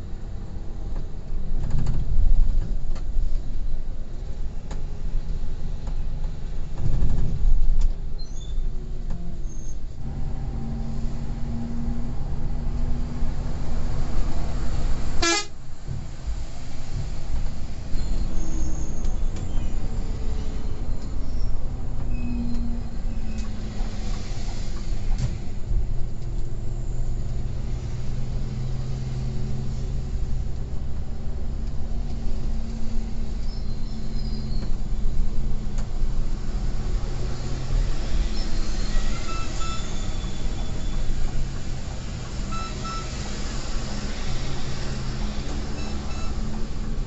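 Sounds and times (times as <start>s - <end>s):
road noise: 0.0s - 47.0s
coach engine drone: 8.8s - 47.0s
horn toot: 15.2s - 15.5s.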